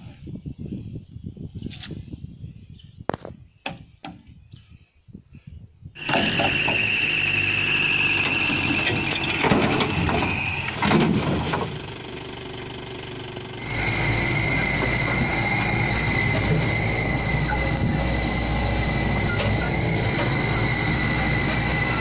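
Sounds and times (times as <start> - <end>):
high-pitched squeal: 6.0 - 11.0, 13.5 - 22.0
engine and tyres rumbling: 6.0 - 22.0
pickup moving on dirt track: 6.0 - 22.0
high whine: 13.4 - 22.0.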